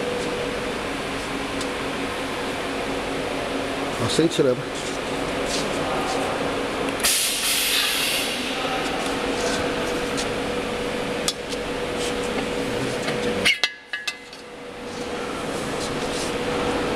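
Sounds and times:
workshop machinery hum: 0.0 - 16.9.

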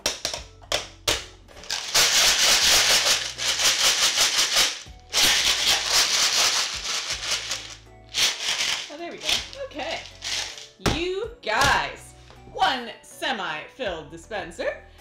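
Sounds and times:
jelly beans rattling in dispenser: 1.6 - 10.8.

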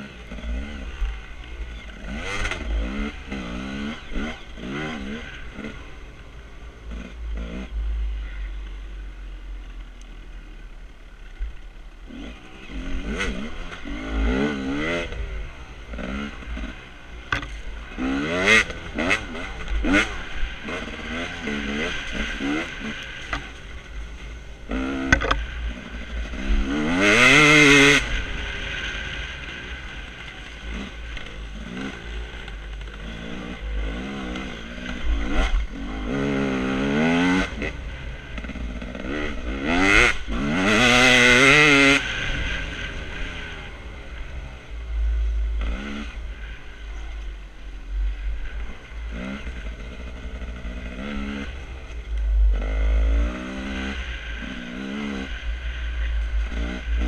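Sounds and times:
dirt bike engine revving: 0.0 - 8.5, 11.1 - 57.0.

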